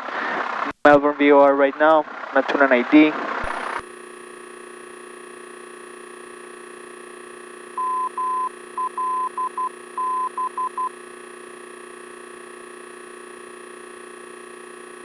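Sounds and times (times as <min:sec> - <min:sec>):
engine idling hum: 0:00.0 - 0:15.0
morse code beeping tone: 0:07.8 - 0:10.9.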